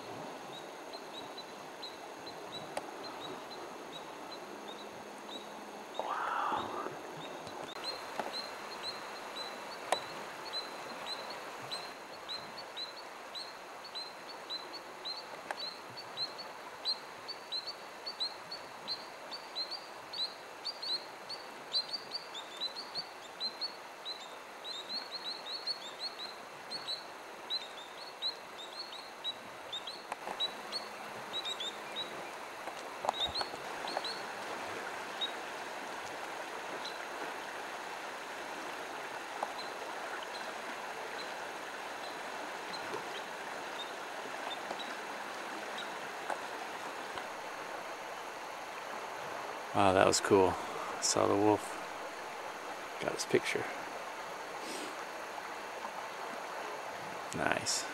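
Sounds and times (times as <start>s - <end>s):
river rushing: 0.0s - 14.0s, 14.8s - 57.9s
small bird chirping: 0.5s - 32.4s, 33.1s - 34.3s.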